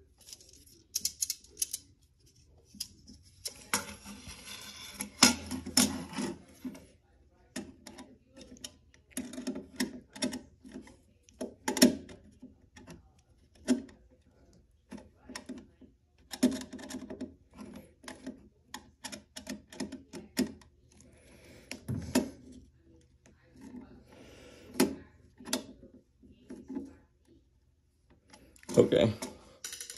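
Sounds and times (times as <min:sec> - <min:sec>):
rasping scrape: 0:03.7 - 0:06.6.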